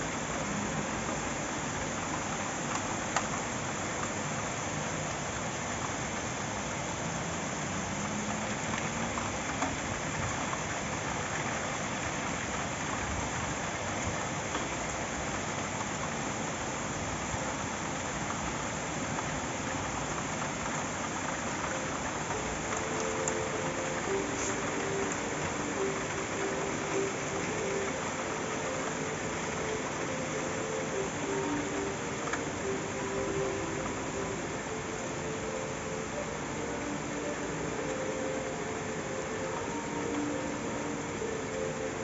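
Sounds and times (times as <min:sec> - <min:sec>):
heavy rain: 0:00.0 - 0:42.0
sharp drip ticks: 0:19.2 - 0:34.0.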